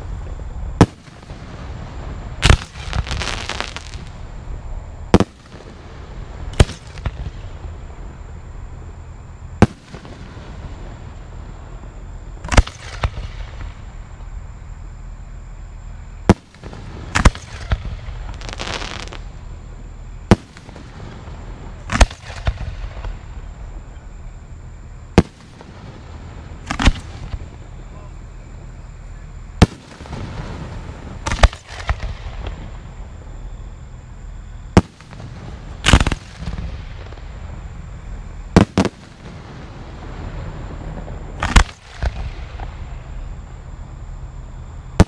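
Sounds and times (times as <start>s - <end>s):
hissing crackle: 0.0s - 45.0s
firework shells bursting: 2.4s - 4.3s, 12.4s - 13.9s, 20.3s - 23.3s, 26.6s - 27.5s, 29.6s - 32.7s, 34.7s - 37.4s, 38.5s - 39.5s, 40.1s - 43.1s.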